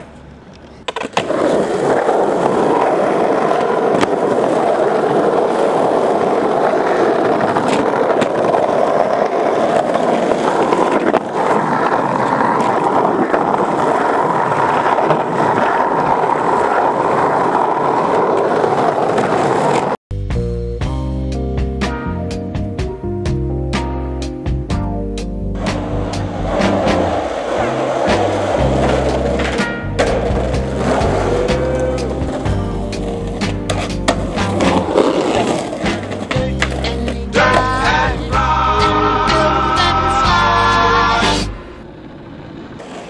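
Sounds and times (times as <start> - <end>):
skateboard wheels rolling on asphalt: 0.0 - 20.0, 24.5 - 43.0
skateboard clicks: 0.2 - 20.0, 25.6 - 37.6.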